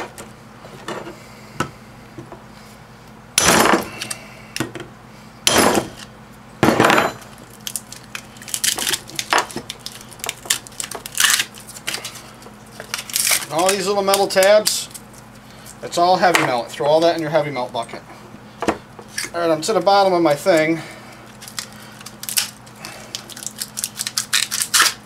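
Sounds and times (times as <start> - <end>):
hammer striking metal: 5.5 - 6.0.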